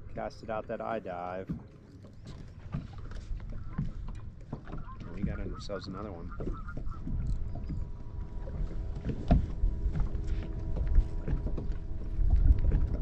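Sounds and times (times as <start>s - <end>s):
wind on microphone: 2.7s - 13.0s.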